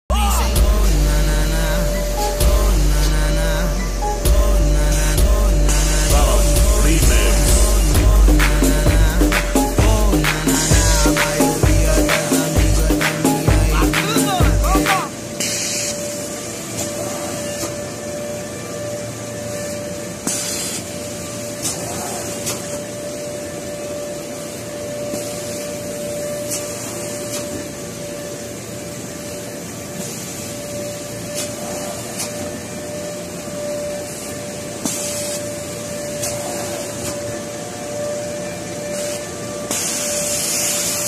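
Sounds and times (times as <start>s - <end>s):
machine hum with whine: 0.1s - 41.0s
hissing bursts: 0.4s - 17.5s, 38.8s - 41.0s.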